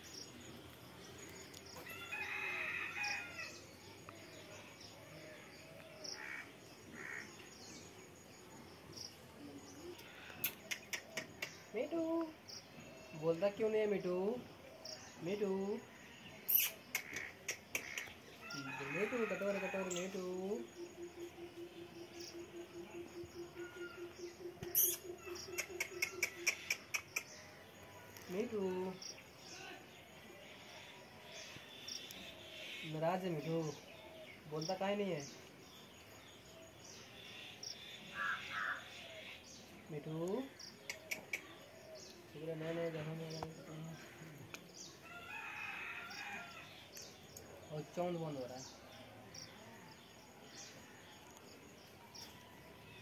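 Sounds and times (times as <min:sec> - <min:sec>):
rooster crowing: 0:01.8 - 0:03.6, 0:18.4 - 0:20.3, 0:45.0 - 0:46.8.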